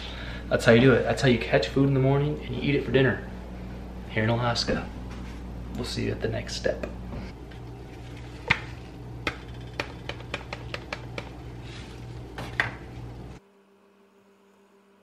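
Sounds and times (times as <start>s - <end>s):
electrical hum: 0.0s - 15.0s
seasoning packet clicks and taps: 9.3s - 11.4s.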